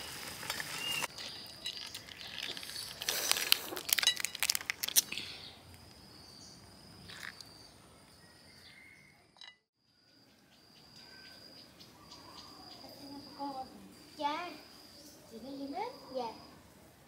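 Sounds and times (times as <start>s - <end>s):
faint insect chirring: 0.1s - 16.8s
crayfish shells cracking: 0.4s - 5.2s.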